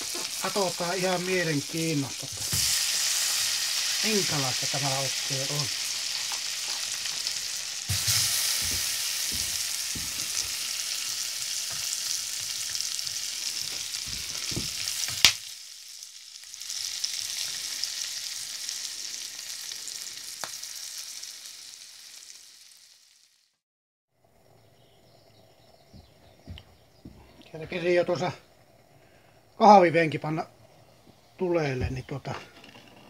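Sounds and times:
sausages sizzling in a frying pan: 0.0 - 23.6.

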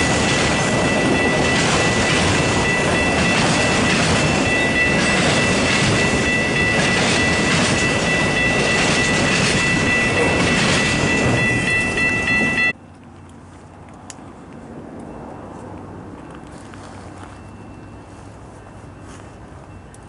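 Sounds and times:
high ringing tone: 0.0 - 12.8
train wheels rumbling on rails: 0.0 - 12.8.

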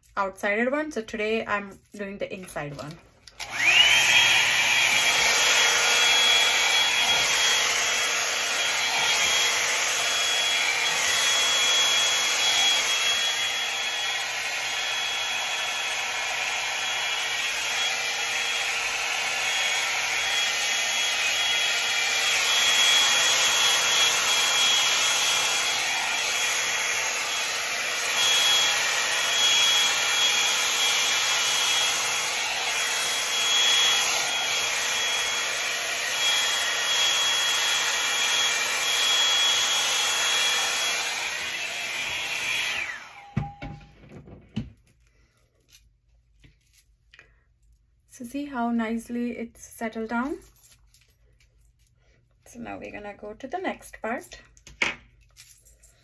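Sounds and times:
hot-air brush blowing: 3.3 - 43.6.

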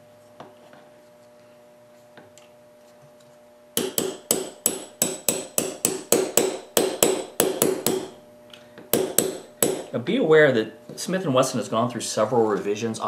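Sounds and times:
hammer tapping steel punch: 3.8 - 8.2, 8.8 - 10.0.

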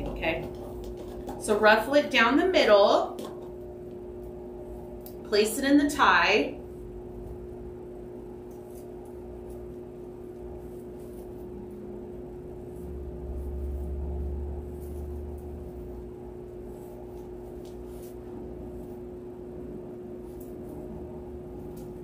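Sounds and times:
electrical hum: 0.0 - 22.0
low rumble: 11.8 - 16.3
mesh rustling and crinkling: 16.6 - 19.1.

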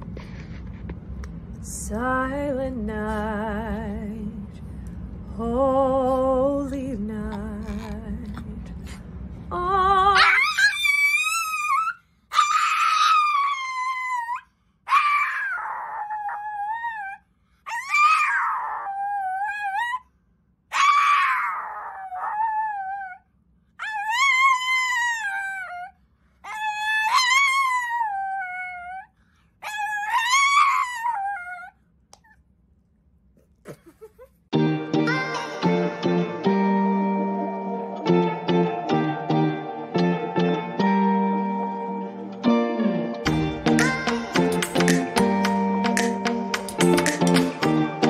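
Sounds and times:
small dog howling: 10.1 - 20.0, 20.7 - 23.2, 23.8 - 31.8.

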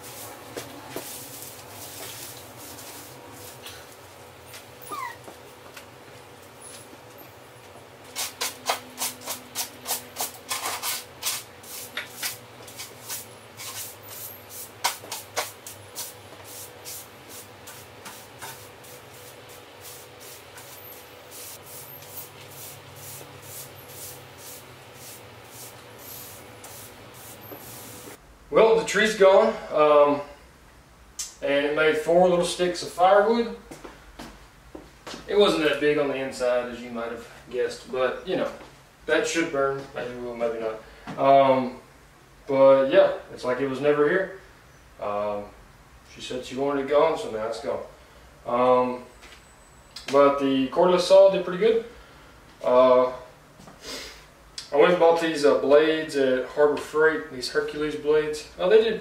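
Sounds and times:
broom sweeping hard floor: 0.0 - 5.7, 8.0 - 28.2.

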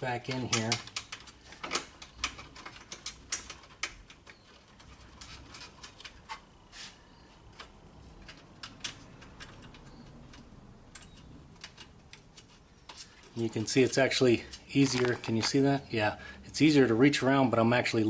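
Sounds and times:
bolts clicking on plastic: 0.3 - 6.4, 7.5 - 15.6.

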